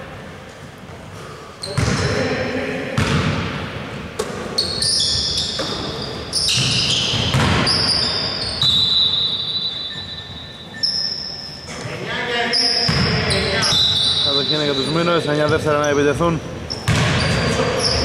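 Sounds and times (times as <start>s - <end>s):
shoes squeaking on court: 1.6s - 2.2s, 4.2s - 18.0s
basketball bouncing on wooden floor: 1.7s - 2.1s, 3.0s - 3.6s, 5.1s - 8.8s, 12.9s - 13.8s, 16.7s - 18.0s.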